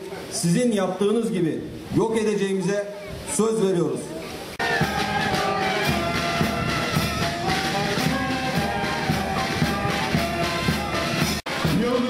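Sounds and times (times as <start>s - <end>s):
bass drum beat: 4.6s - 12.0s
brass band playing: 4.6s - 12.0s.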